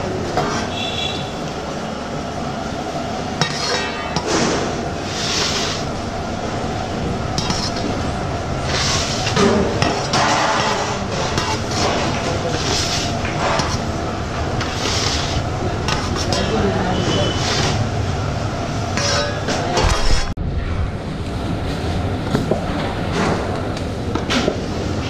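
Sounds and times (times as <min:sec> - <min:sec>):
metal plate scraping: 0:03.4 - 0:06.0, 0:07.3 - 0:17.9, 0:18.9 - 0:20.7.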